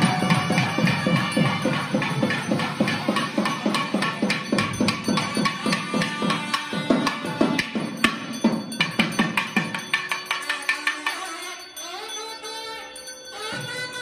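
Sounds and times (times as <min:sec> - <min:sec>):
drums in fast rhythm: 0:00.0 - 0:11.2.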